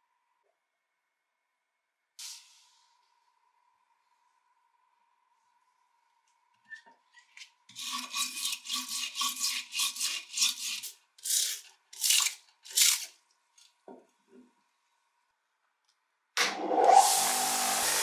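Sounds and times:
wire brush scrubbing metal: 7.7 - 13.1.

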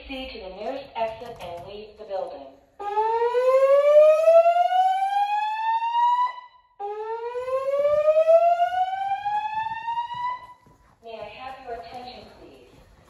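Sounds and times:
fire alarm whoop tone: 2.8 - 10.6.

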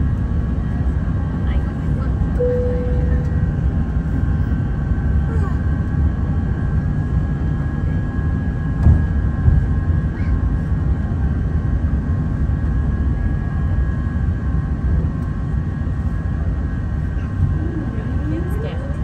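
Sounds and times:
jet engines running: 0.0 - 19.0.

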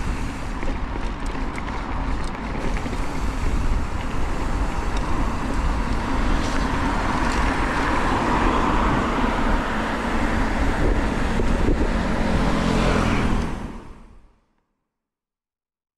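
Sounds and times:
bike clicking: 0.0 - 13.6
bike tyre noise: 0.0 - 14.2
wind over microphone: 0.0 - 14.2
car traffic: 0.0 - 14.6.

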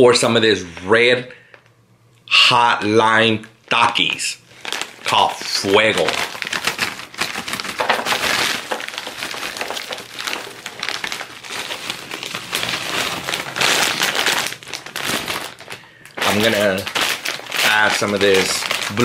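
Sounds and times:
chips poured from foil bag: 4.6 - 19.0
chips clattering onto plate: 6.1 - 11.3.

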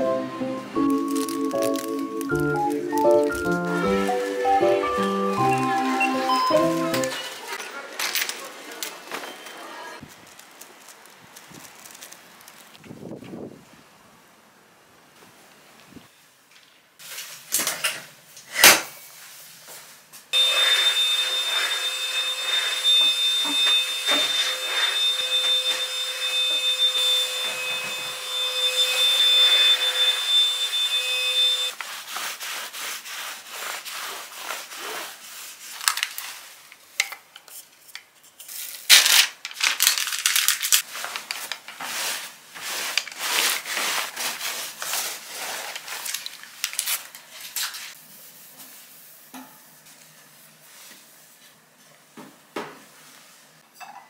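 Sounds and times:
vacuum cleaner whining: 0.0 - 7.6, 20.4 - 31.8.

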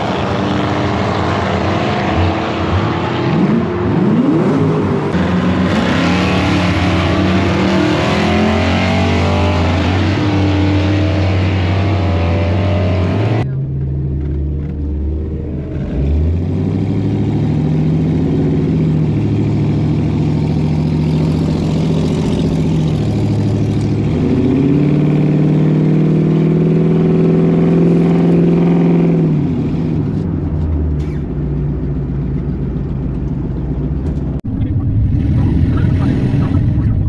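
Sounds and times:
car engine revving: 0.0 - 37.0.

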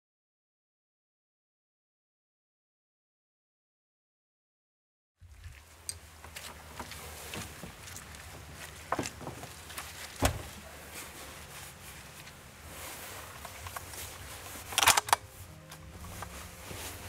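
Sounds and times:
gear knocks and clicks: 5.8 - 10.6, 13.4 - 16.4
heavy thump: 10.2 - 10.6
rifle sharp clacks: 14.8 - 15.2.

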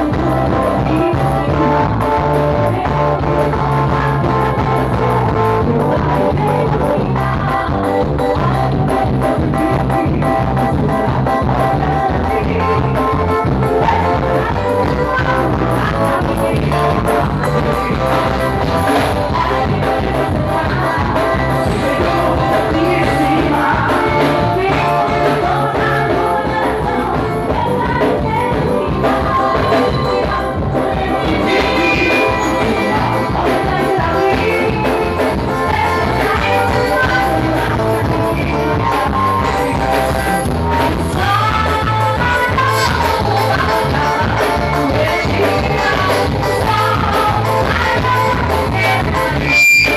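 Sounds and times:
person singing: 0.0 - 49.9
horns playing: 31.3 - 33.3, 49.4 - 49.9.

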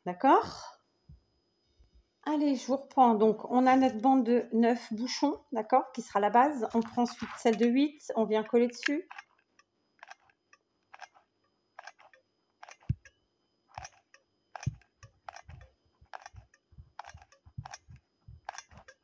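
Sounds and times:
glue gun trigger clicking: 8.8 - 11.2, 11.8 - 13.2, 13.8 - 19.0.

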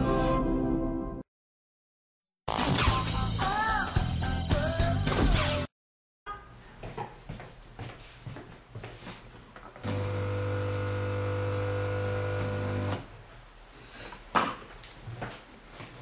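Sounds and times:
vending machine buzzing: 9.8 - 13.0.

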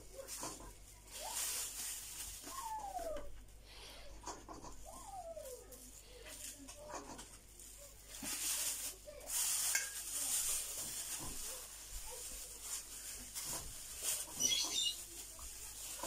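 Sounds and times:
plastic bag crinkling: 0.0 - 3.5, 4.8 - 16.0.

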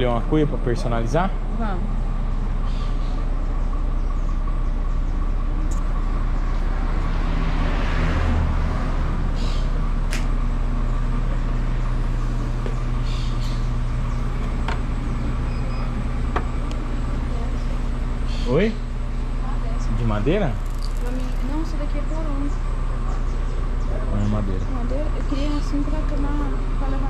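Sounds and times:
vehicle engine running: 0.0 - 27.0
passing vehicle rush: 5.4 - 27.0.

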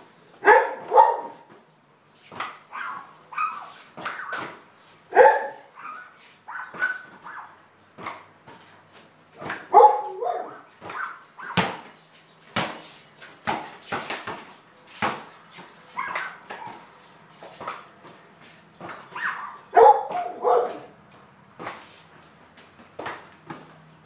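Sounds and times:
dog barking excitedly: 0.4 - 1.5, 2.6 - 4.5, 5.1 - 7.6, 9.4 - 11.8, 15.9 - 16.9, 19.1 - 21.0
basketball bouncing on concrete: 7.9 - 24.0.

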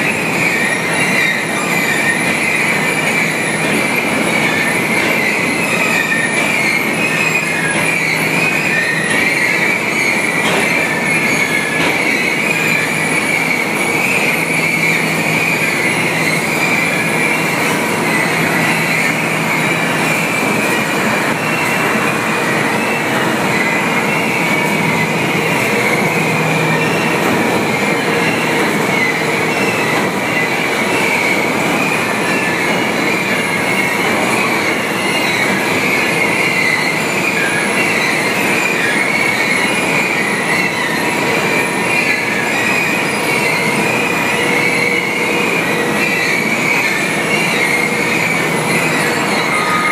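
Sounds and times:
wavering high squeal: 0.1 - 49.9
machinery din: 48.1 - 49.9.

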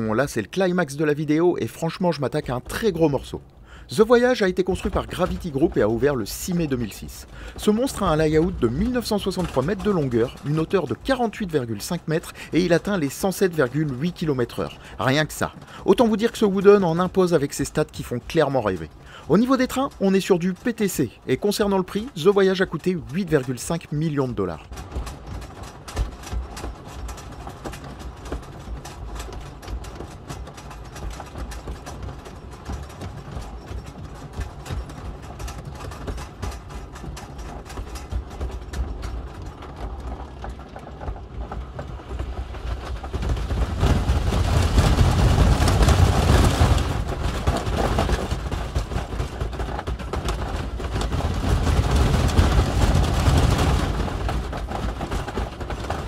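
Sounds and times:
roller coaster lift hill clicks: 0.0 - 56.0
roller coaster train rumbling: 0.0 - 56.0.

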